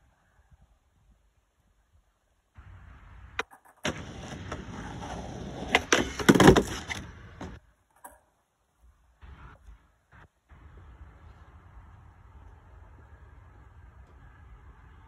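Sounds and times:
skateboard wheels rolling: 2.6s - 8.4s
skateboard clacking on planks: 3.4s - 8.3s.

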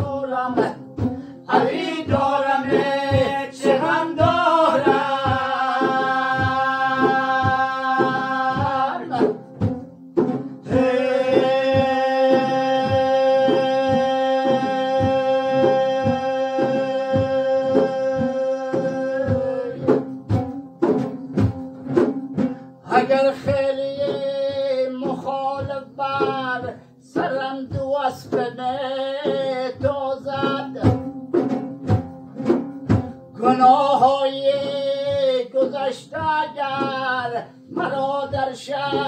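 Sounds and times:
man singing: 0.0s - 9.5s, 10.6s - 20.2s, 22.8s - 31.1s, 33.3s - 39.0s
hand drum beats: 0.0s - 39.0s.

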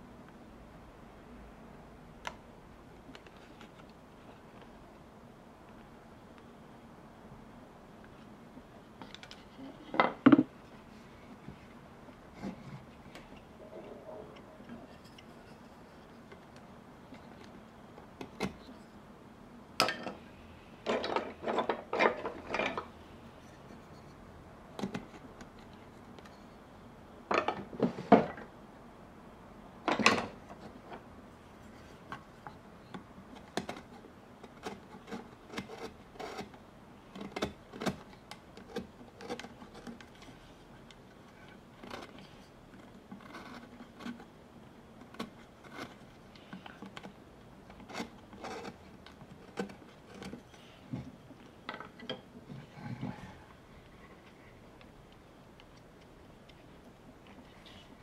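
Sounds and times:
carving tool scraping wood: 33.6s - 36.5s, 43.2s - 44.3s, 45.1s - 47.1s, 47.7s - 50.8s.

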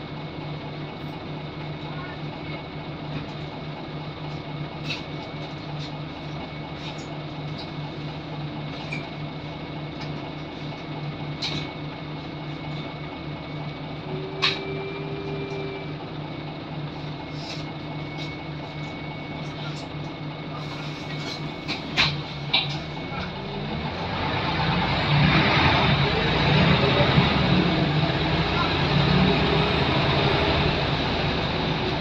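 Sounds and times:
bus engine drone: 0.0s - 32.0s
high-pitched whine: 12.6s - 16.5s.

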